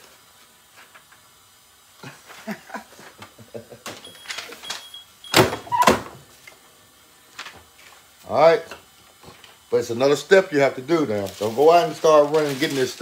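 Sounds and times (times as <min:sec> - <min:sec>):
plastic film rustling and crinkling: 0:07.3 - 0:08.6, 0:09.2 - 0:13.0.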